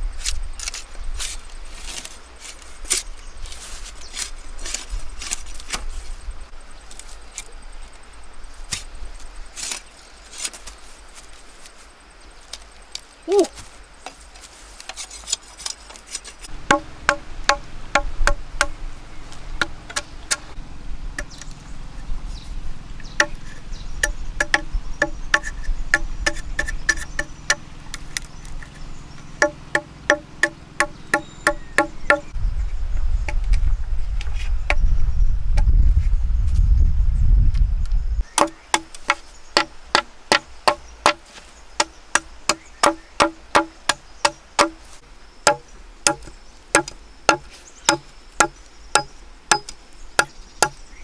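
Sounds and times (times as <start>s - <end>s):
low rumbling noise: 16.5s - 38.3s
knife chopping bamboo: 16.7s - 18.8s, 29.4s - 32.3s, 38.3s - 44.8s, 45.5s - 50.8s.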